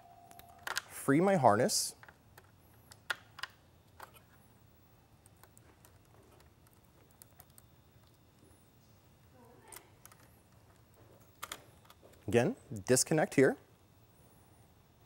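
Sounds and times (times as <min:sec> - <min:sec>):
plastic wiring harness clicking: 0:09.7 - 0:12.0.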